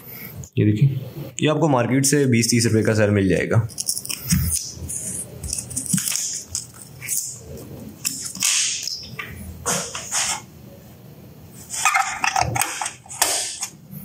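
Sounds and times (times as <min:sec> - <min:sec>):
blister pack crinkling: 0:03.7 - 0:08.8.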